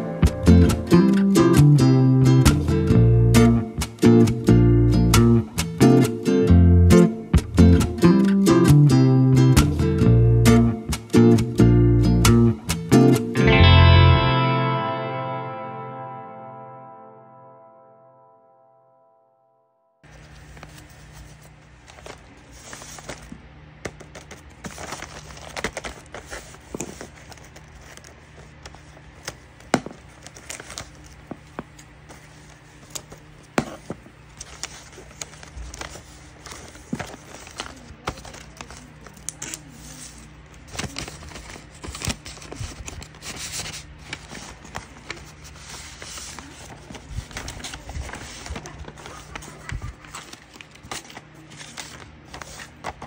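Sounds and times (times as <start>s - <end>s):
paper rustling and crinkling: 20.0s - 53.0s
sharp paper taps and crackles: 21.9s - 39.6s, 40.6s - 53.0s.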